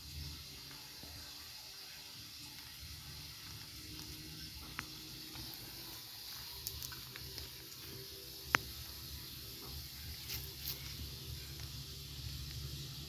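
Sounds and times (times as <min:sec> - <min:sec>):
faint steady hiss: 0:00.0 - 0:13.0.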